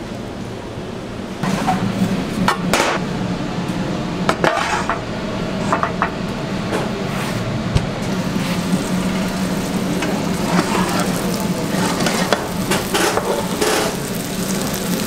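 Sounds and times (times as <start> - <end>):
steady low hum: 0.0 - 15.0
metal pan clanking and scraping: 11.8 - 14.0.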